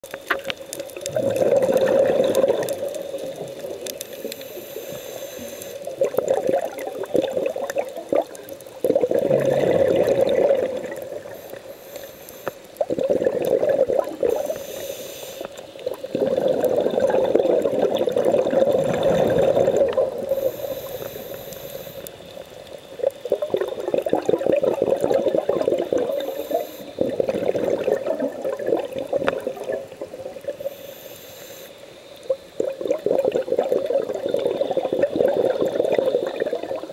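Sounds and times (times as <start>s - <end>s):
underwater bubbles burbling: 0.0s - 30.8s, 32.2s - 36.9s
regulator inhalation hiss: 4.0s - 6.0s, 11.1s - 12.7s, 14.2s - 16.0s, 20.2s - 23.0s, 26.0s - 27.2s, 30.6s - 32.6s.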